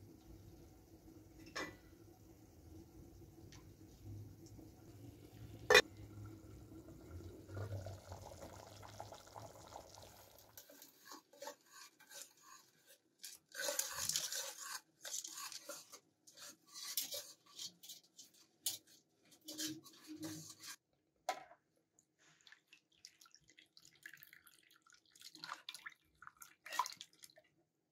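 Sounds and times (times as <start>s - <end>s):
whisk sloshing in water: 10.6s - 18.5s.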